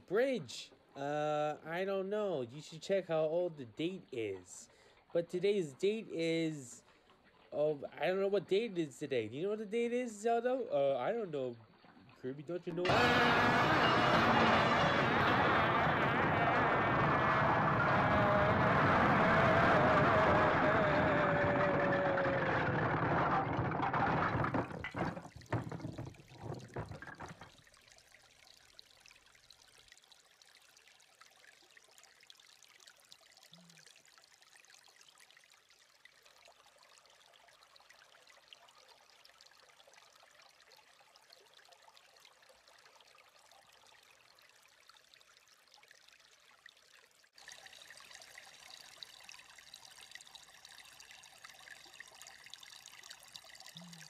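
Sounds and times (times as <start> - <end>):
stream trickling over stones: 0.0 - 12.9, 23.4 - 54.0
rush of noise with falling tone: 12.9 - 24.1
knocks: 22.9 - 27.6.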